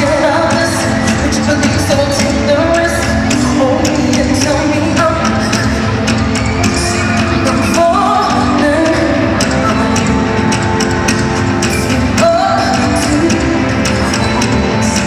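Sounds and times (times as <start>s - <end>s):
live pop band with drums: 0.0s - 15.0s
woman singing lead vocal: 0.0s - 15.0s.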